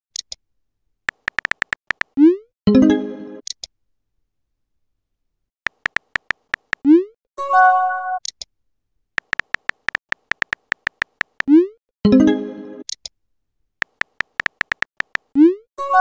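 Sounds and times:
keyboard tap clicks: 0:01.1 - 0:02.2, 0:05.7 - 0:06.8, 0:09.2 - 0:11.5, 0:13.8 - 0:15.3.

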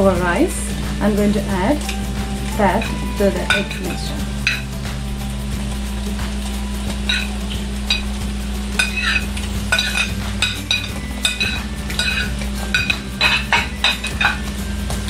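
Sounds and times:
steady low hum: 0:00.0 - 0:15.0
metal spoon clinking on bowl: 0:01.8 - 0:04.7, 0:08.8 - 0:14.5.

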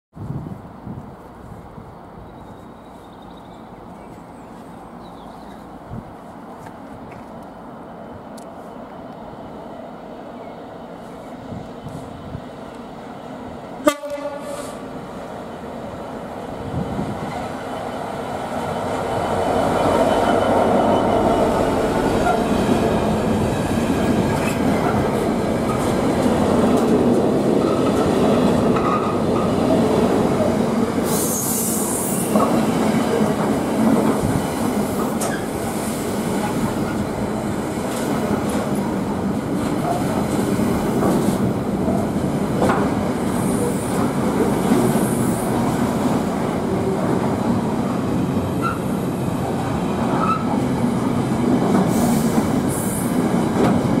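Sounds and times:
diesel locomotive passing: 0:00.4 - 0:54.0
freight train wagons rumbling: 0:15.5 - 0:54.0.

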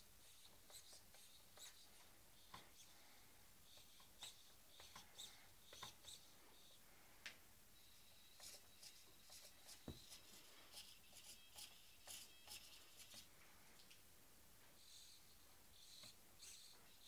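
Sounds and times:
faint high whine: 0:00.0 - 0:17.0
servos whirring in short chirps: 0:07.8 - 0:13.2, 0:14.8 - 0:17.0.

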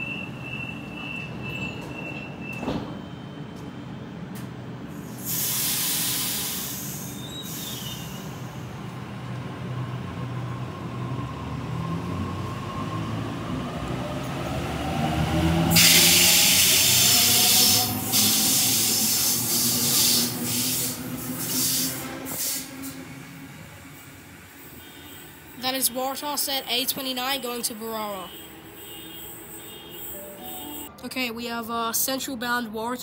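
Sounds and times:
rush of passing carriages: 0:03.3 - 0:31.0
hiss of air: 0:04.9 - 0:08.7, 0:15.7 - 0:23.1.

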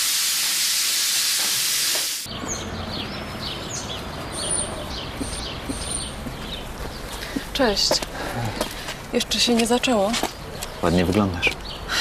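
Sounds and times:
shower water spraying: 0:00.0 - 0:02.3
street traffic rumble: 0:01.4 - 0:12.0
small birds chirping: 0:02.3 - 0:12.0.

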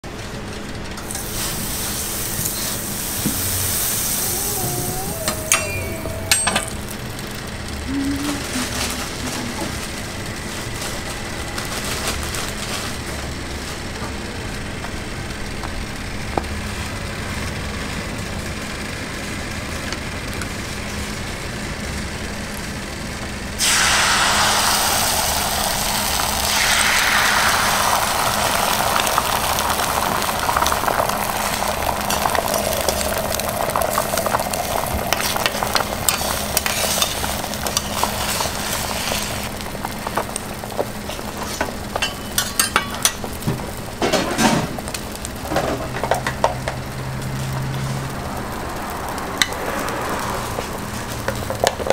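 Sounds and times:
egg frying on griddle: 0:00.1 - 0:07.9, 0:08.7 - 0:51.9
oil sizzling on griddle: 0:00.6 - 0:07.6, 0:23.2 - 0:51.9.

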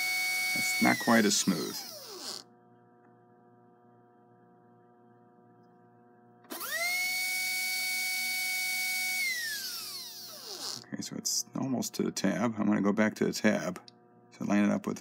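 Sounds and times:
small electric motor whining: 0:00.0 - 0:02.5, 0:06.5 - 0:10.8
faint steady hum: 0:00.0 - 0:15.0.

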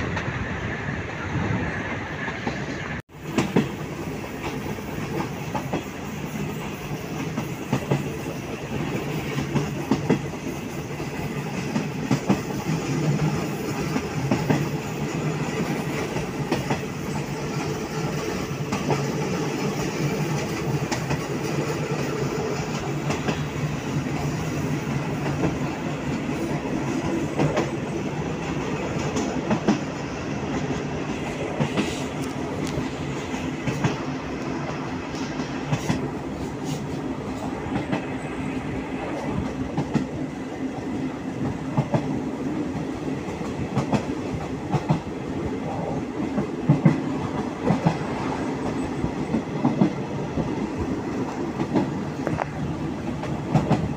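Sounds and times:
clickety-clack of rail joints: 0:00.0 - 0:53.9
train wheels rumbling on rail: 0:00.0 - 0:53.9.

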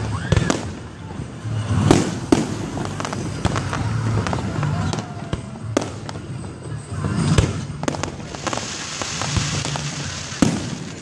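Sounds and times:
fireworks bursting: 0:00.0 - 0:11.0
fireworks hiss: 0:07.0 - 0:11.0.

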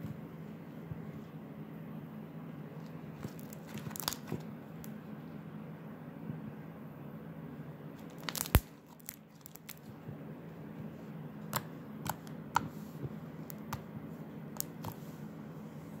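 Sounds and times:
slime stretching and tearing: 0:03.2 - 0:04.4, 0:08.0 - 0:09.9.

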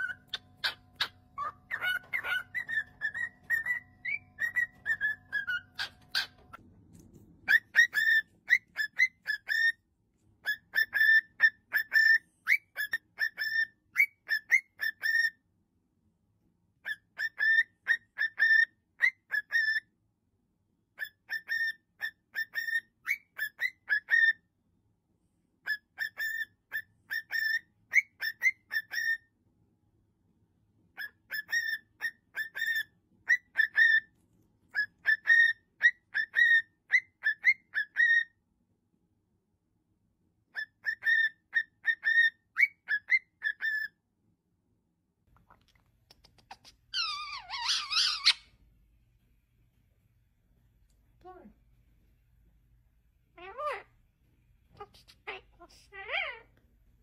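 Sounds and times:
cockatiel whistling a tune: 0:00.0 - 0:06.5, 0:07.4 - 0:09.8, 0:10.4 - 0:15.4, 0:16.8 - 0:19.9, 0:21.0 - 0:24.4, 0:25.6 - 0:29.3, 0:31.0 - 0:34.1, 0:34.7 - 0:38.4, 0:40.5 - 0:44.0.

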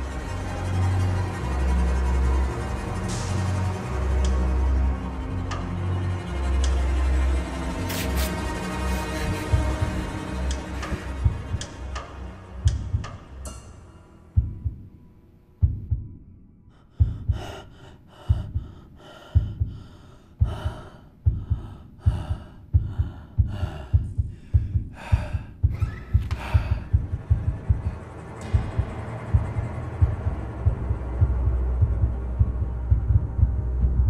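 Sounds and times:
heartbeat thuds: 0:09.1 - 0:10.2, 0:10.8 - 0:12.0, 0:12.6 - 0:13.3, 0:14.3 - 0:15.0, 0:15.6 - 0:16.2, 0:17.0 - 0:34.0
heavy gasping breathing: 0:16.7 - 0:27.4.

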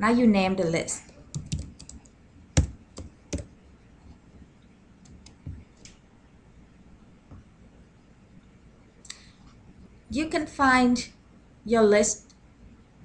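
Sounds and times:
computer keyboard typing: 0:01.3 - 0:03.6.

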